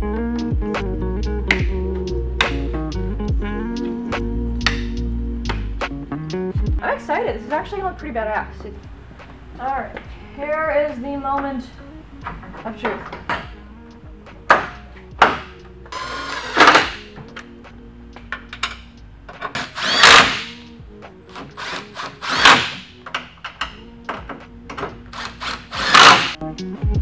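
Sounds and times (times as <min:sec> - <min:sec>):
cordless drill spinning: 0:16.0 - 0:16.8, 0:19.6 - 0:20.5, 0:21.6 - 0:22.6, 0:25.2 - 0:26.4.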